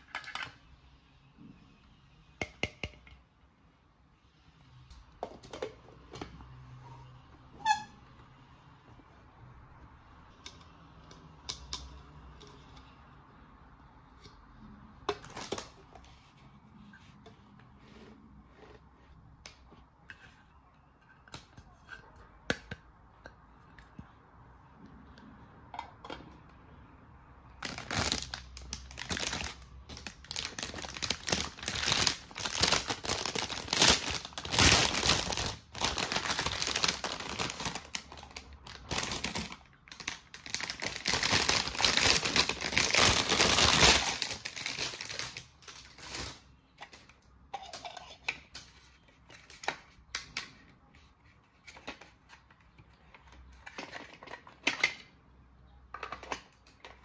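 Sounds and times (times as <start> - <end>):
packaging crinkling and rustling: 15.2 - 15.9, 27.6 - 47.1.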